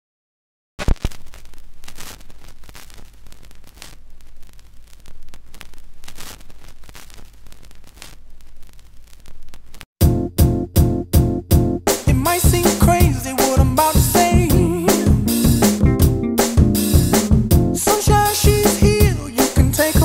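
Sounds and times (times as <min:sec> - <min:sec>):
vinyl record crackle and hiss: 0:00.8 - 0:09.9, 0:16.4 - 0:20.0
music with steady beat: 0:10.0 - 0:20.0.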